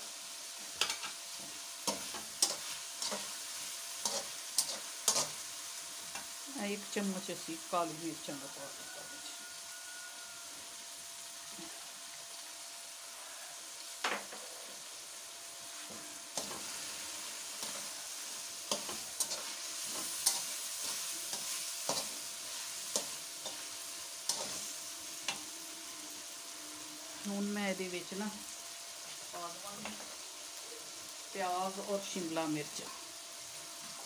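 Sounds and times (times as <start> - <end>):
food sizzling in a pan: 0.0 - 34.0
metal spoon scraping a pan: 0.8 - 5.5, 15.8 - 26.8.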